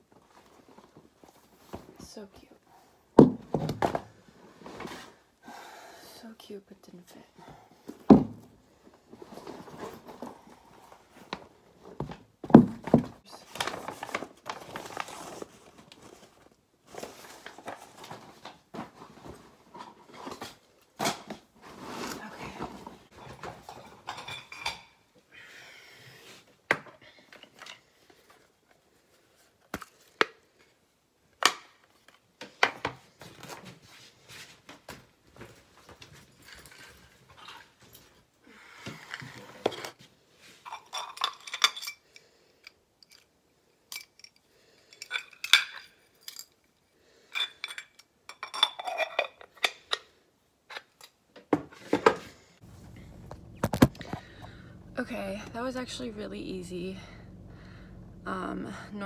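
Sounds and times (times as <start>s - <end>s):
items knocking as set down: 3.2s - 4.1s, 8.0s - 8.5s, 12.0s - 13.2s, 51.4s - 54.9s
clothes and bags rustling: 8.8s - 12.3s, 13.1s - 20.7s, 52.5s - 58.2s.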